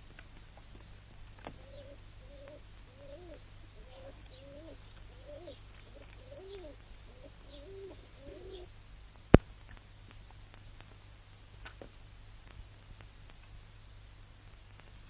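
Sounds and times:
cooing bird calls: 1.4 - 8.7.

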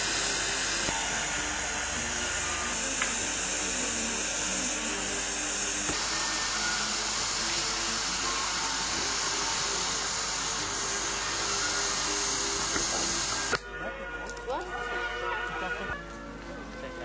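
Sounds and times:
steady hiss: 0.0 - 13.7
faint music: 0.0 - 17.0
click: 3.0 - 3.2.

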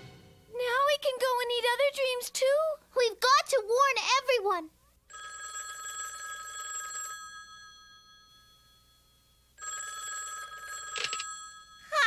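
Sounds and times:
old telephone bell ringing: 5.1 - 12.0.

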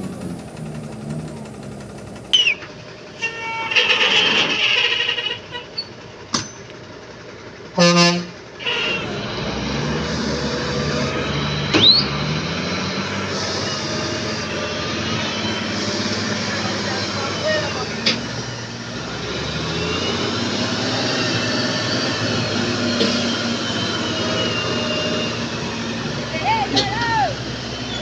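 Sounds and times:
truck diesel engine under load: 0.0 - 28.0
short high whistles: 2.3 - 2.7, 11.8 - 12.2
truck horn blast: 2.4 - 5.9, 7.7 - 9.5.

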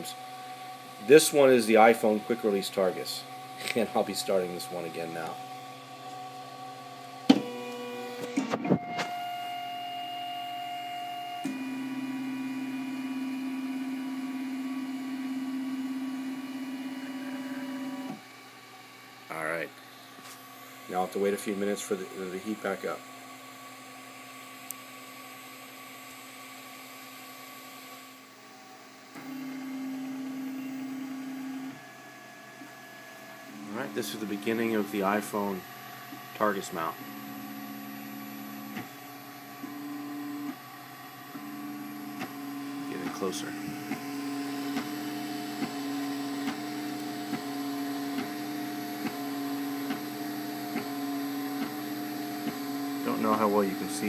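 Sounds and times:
stepper motors humming: 0.0 - 23.0, 33.1 - 54.0
fans whirring: 0.0 - 54.0.

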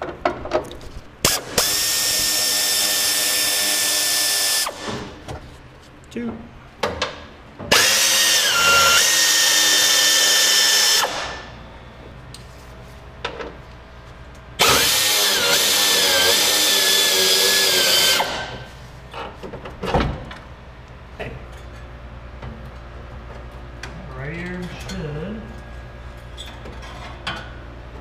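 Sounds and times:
air ratchet whining: 1.2 - 5.2, 7.7 - 11.6, 14.6 - 18.7.

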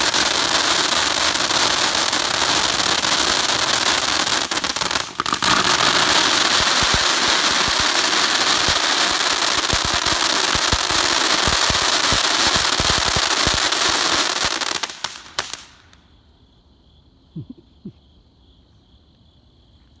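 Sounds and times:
crackling pops: 0.0 - 8.0, 14.9 - 16.0
firework fountain hissing: 0.0 - 15.8.

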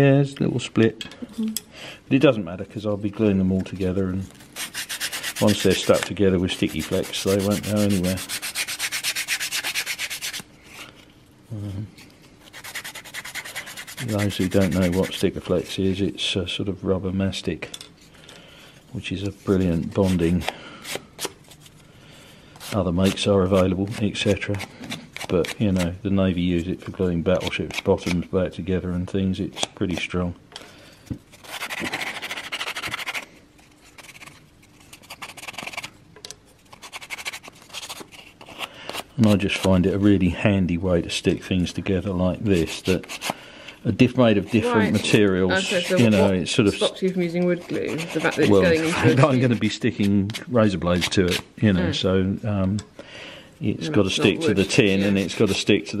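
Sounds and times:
sandpaper rubbing wood: 4.6 - 10.5, 12.4 - 15.7, 19.5 - 20.5, 31.3 - 35.9, 36.7 - 39.7, 42.4 - 43.3, 44.3 - 46.9, 47.6 - 50.1, 54.5 - 56.0.

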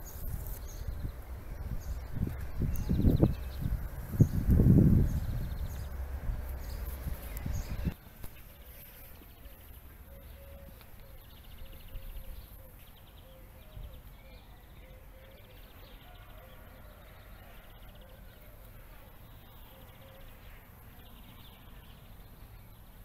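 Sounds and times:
low rumble: 0.0 - 8.0
thin wavering hum: 0.0 - 8.0
small birds chirping: 0.0 - 23.0.

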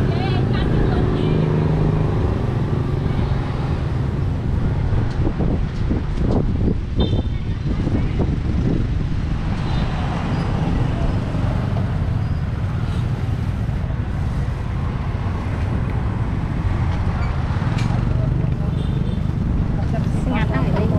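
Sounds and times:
people talking: 0.0 - 1.6, 19.8 - 20.9
low rumble of traffic: 0.0 - 20.9.

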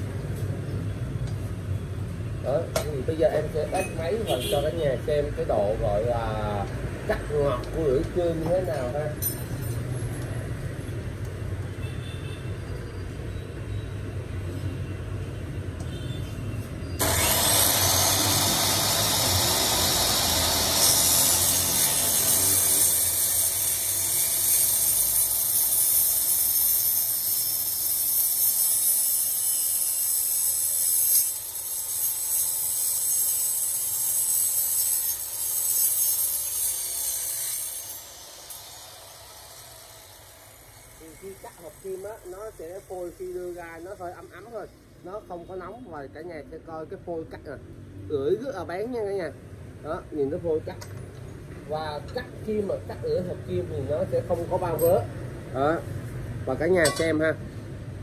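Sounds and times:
saw motor rumble: 17.0 - 23.7
saw blade cutting steel: 17.0 - 44.6.

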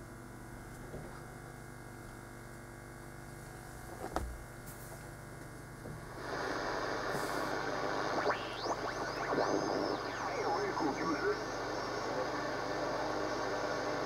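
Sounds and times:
radio receiver low hum: 6.0 - 14.0
radio static: 6.2 - 14.0.

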